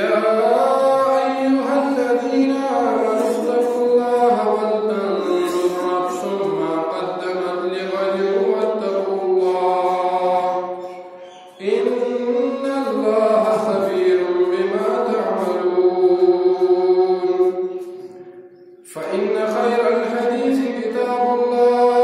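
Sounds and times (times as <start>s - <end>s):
man chanting melodic recitation: 0.0s - 22.0s.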